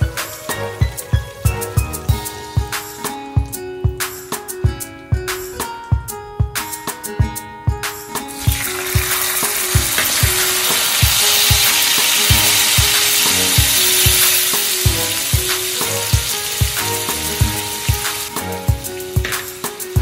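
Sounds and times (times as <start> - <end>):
background music with steady beat: 0.0 - 20.0
juice sizzling in hot oil: 8.3 - 20.0.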